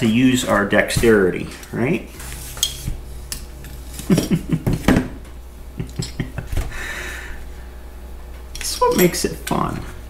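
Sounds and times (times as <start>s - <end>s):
screwdriver clinking on metal: 8.6s - 9.2s.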